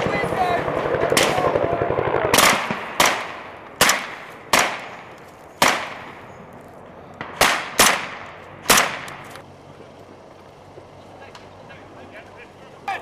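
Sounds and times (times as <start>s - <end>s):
rifle shots with echo: 0.0s - 6.2s, 7.2s - 9.2s.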